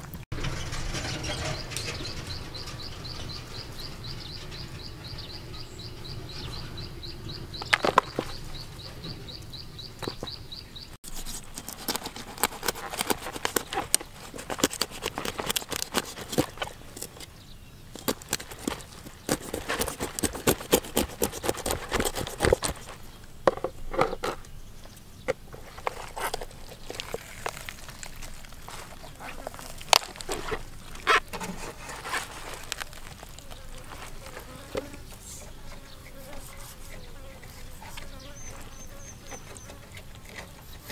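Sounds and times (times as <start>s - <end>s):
knife cutting poultry skin: 11.1s - 17.1s, 18.0s - 23.0s
wet clicks and crackles: 25.3s - 31.4s, 32.2s - 34.9s.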